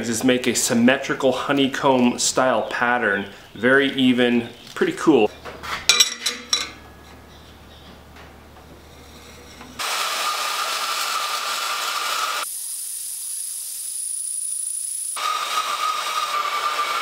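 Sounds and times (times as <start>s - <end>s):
band saw cutting steel: 8.8s - 12.5s, 15.1s - 17.0s.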